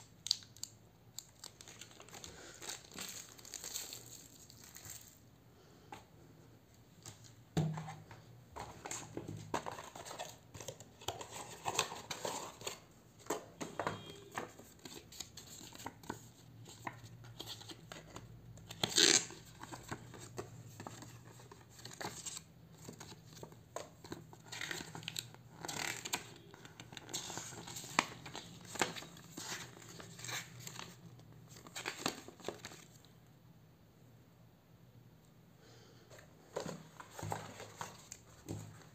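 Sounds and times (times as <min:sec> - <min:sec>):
plastic bag crinkling: 0:00.2 - 0:05.2
paper rustling: 0:36.5 - 0:38.9.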